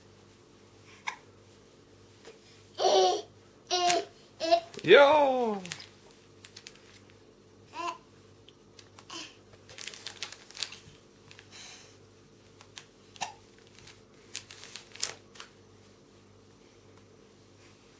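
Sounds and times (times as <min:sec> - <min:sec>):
plastic packaging crinkling: 0:04.7 - 0:07.1, 0:09.6 - 0:11.5, 0:12.6 - 0:15.6.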